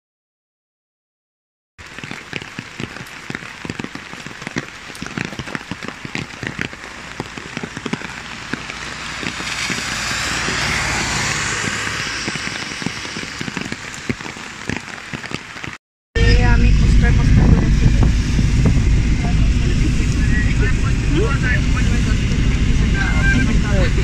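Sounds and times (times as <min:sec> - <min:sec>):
rain pattering on umbrella: 0:01.8 - 0:15.8.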